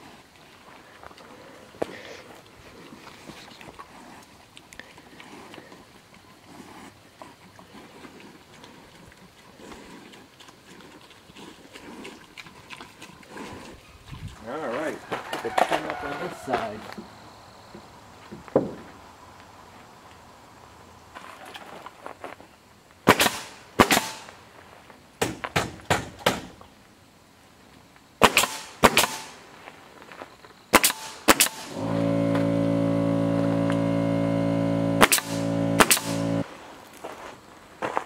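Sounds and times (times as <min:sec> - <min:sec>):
nail gun shots: 0:23.1 - 0:24.3, 0:25.2 - 0:26.5, 0:28.2 - 0:29.4, 0:30.7 - 0:31.9, 0:35.0 - 0:36.4
air compressor humming: 0:31.5 - 0:36.5.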